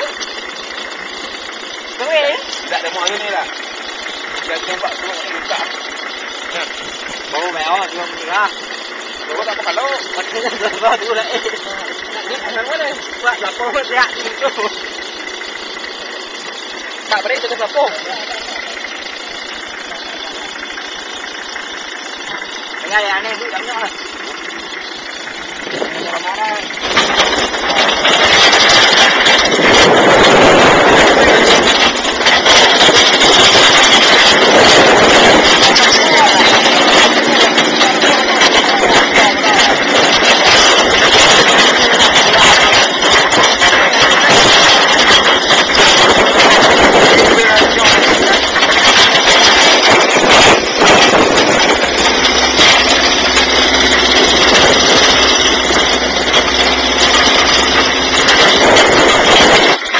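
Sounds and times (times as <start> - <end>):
vehicle engine running: 0.0 - 59.9
loud rushing noise: 25.4 - 59.9.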